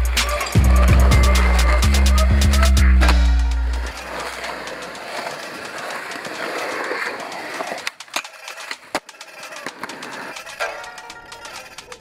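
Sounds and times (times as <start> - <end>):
skateboard wheels rolling on concrete: 0.0 - 12.0
skateboard wooden clacks: 3.8 - 12.0.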